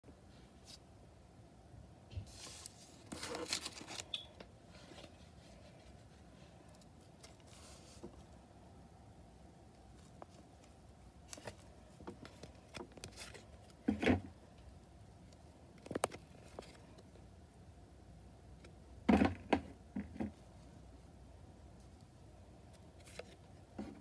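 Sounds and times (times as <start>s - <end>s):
trading cards being handled: 2.3s - 4.2s.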